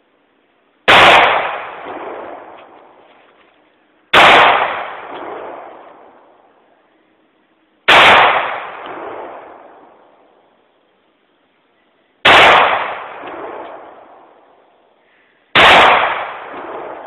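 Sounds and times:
gunshot echo: 0.9s - 3.0s, 4.1s - 6.3s, 7.9s - 10.2s, 12.2s - 14.5s, 15.5s - 17.0s
pistol shots: 0.9s - 3.0s, 4.1s - 6.3s, 7.9s - 10.2s, 12.2s - 14.5s, 15.5s - 17.0s.

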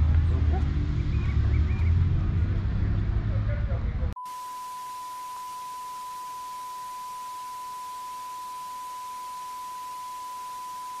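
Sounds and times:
electronic test tone: 4.2s - 11.0s.

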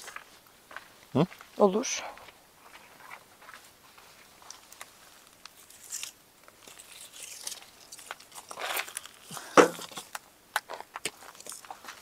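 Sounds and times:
packaging rustling and crinkling: 4.4s - 12.0s.

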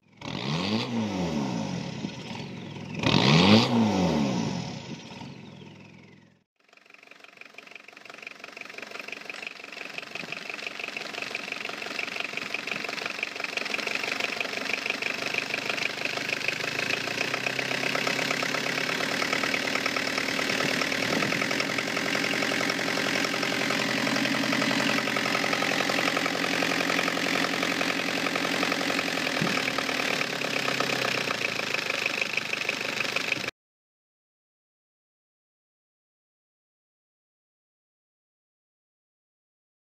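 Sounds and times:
diesel engine idling: 5.4s - 33.5s.

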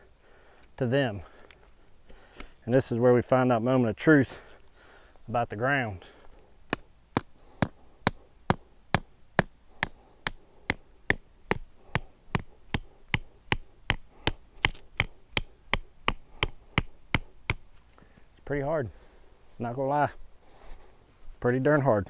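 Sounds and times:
hammer driving stake into ground: 6.7s - 17.7s.

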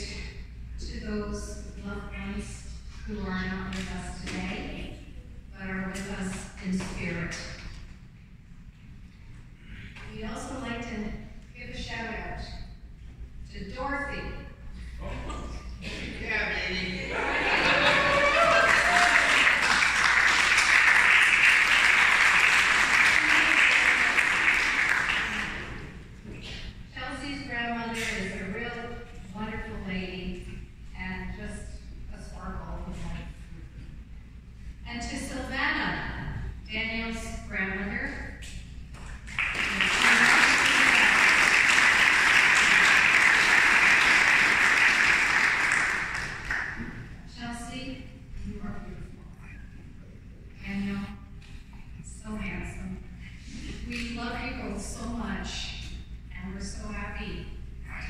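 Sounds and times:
guests applauding: 17.3s - 26.0s, 39.2s - 47.1s.

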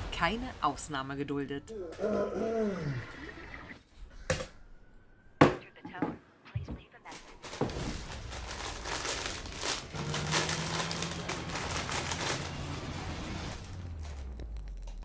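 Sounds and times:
crisp bag crinkling: 7.4s - 15.0s.

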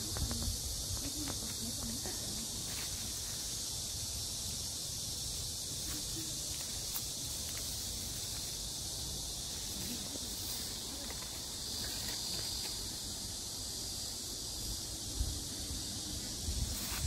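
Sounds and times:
cicadas buzzing: 0.0s - 17.0s.

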